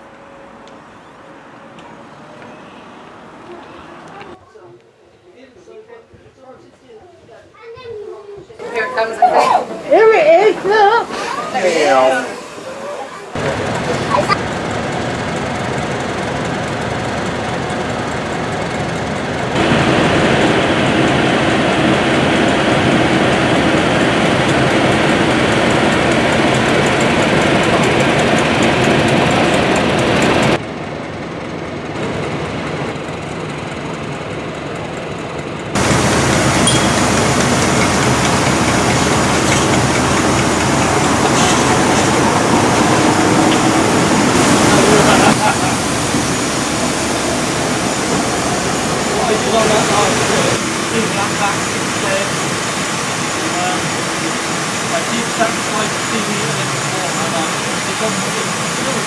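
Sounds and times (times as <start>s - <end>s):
steam hissing: 9.2s - 15.9s, 19.3s - 30.6s, 35.8s - 59.0s
diesel locomotive engine running: 9.6s - 59.0s.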